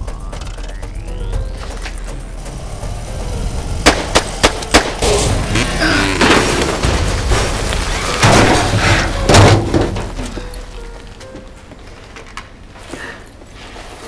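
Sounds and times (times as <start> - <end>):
film music: 0.0 - 12.8
crash onto wooden pallets: 6.1 - 10.4.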